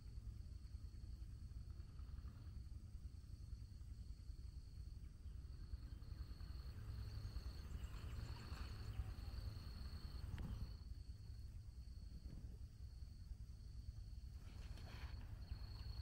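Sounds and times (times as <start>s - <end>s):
high steady insect trill: 0.0s - 16.0s
wind rumble on microphone: 5.6s - 10.8s.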